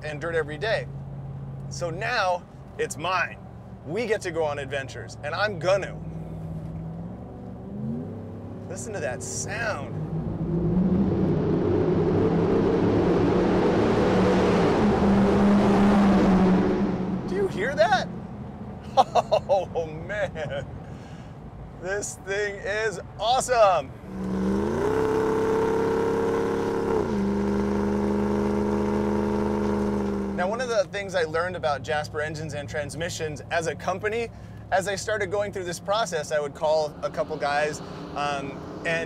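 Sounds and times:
truck engine under throttle: 6.0 - 18.3, 24.0 - 30.7
pickup truck engine under throttle: 24.1 - 30.4.

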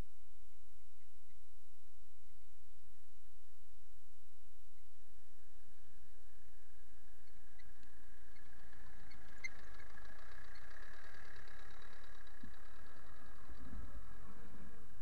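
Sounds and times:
diesel engine running low: 7.9 - 15.0.

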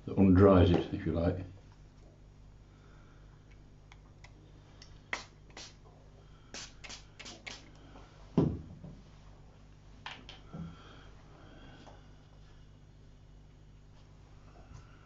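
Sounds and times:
spray bottle squirts: 5.1 - 5.8, 6.5 - 7.7.

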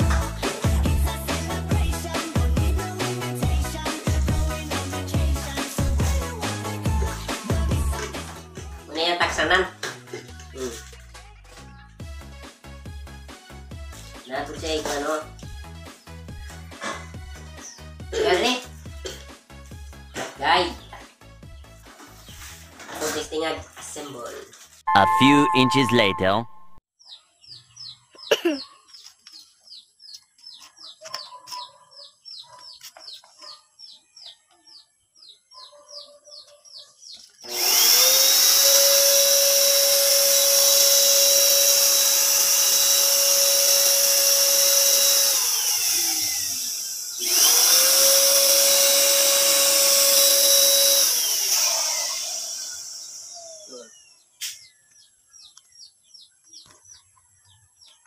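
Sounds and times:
paint sprayer turbine whine: 37.5 - 54.0.

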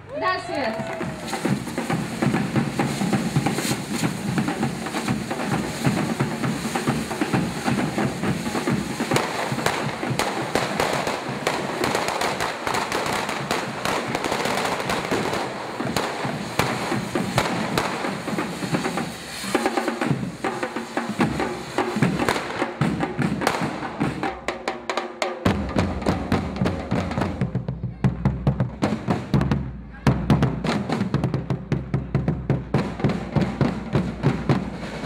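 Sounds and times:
drumming: 0.1 - 35.0
fireworks hissing and crackling: 0.2 - 24.5, 32.5 - 35.0.

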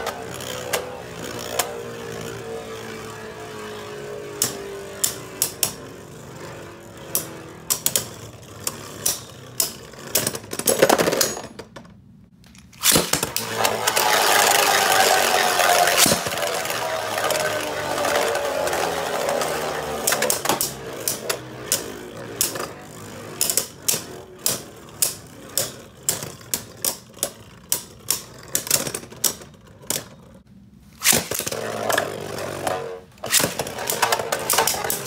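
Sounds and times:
spinning tops whirring: 0.0 - 10.5, 12.6 - 30.4, 31.0 - 35.0
spinning tops clicking together: 12.5 - 30.0, 31.0 - 35.0.

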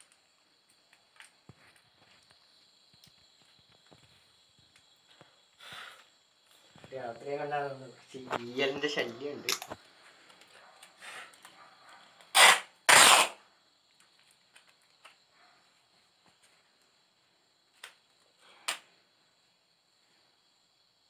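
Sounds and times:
crickets chirring: 0.0 - 21.0
tape ripping off roll: 12.3 - 13.4.

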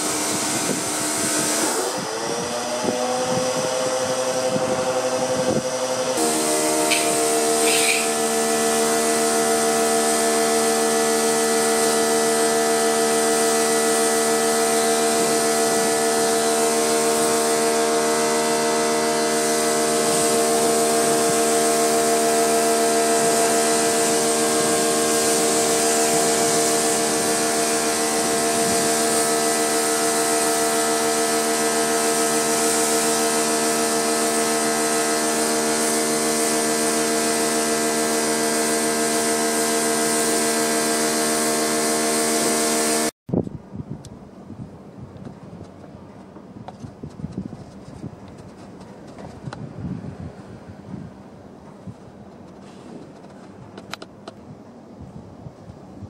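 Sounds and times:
pressure washer motor humming: 0.0 - 43.1
water jet hissing: 6.2 - 10.2, 19.1 - 37.4.

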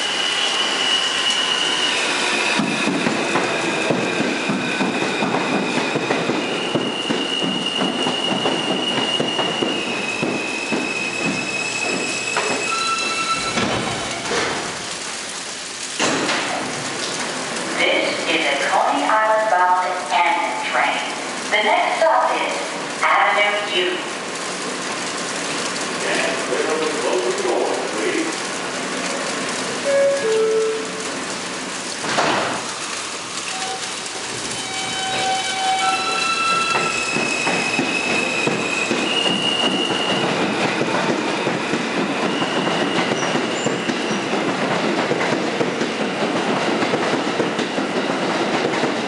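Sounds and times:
train high whine: 0.0 - 14.3, 33.0 - 44.5.

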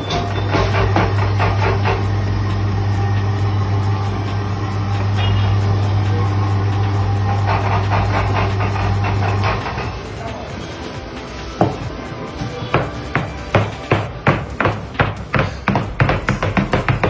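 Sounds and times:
electric motor humming: 0.0 - 12.2.

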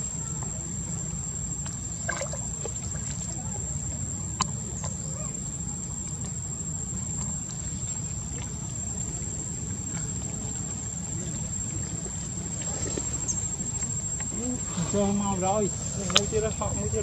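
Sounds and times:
insects calling: 0.0 - 17.0.

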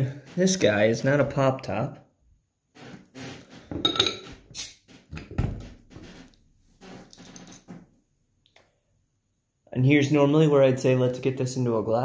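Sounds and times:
glass clinks: 3.8 - 4.3
carbonated bottle hiss: 4.5 - 4.8.

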